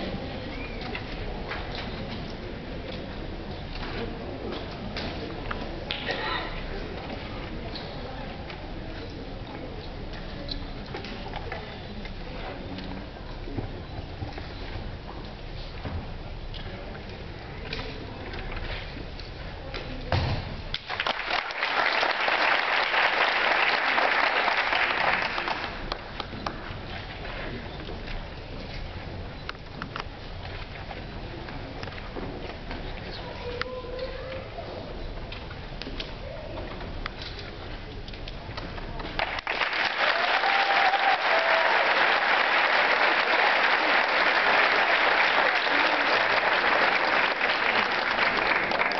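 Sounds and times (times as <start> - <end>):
audience applause: 20.9 - 26.2, 39.2 - 48.9.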